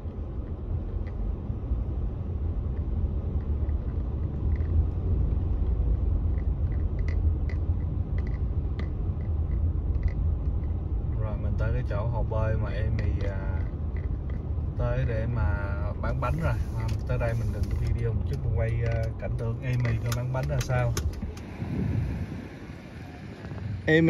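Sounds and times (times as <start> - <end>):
car driving heard from inside: 0.0 - 24.0
faint clicks: 16.2 - 21.5.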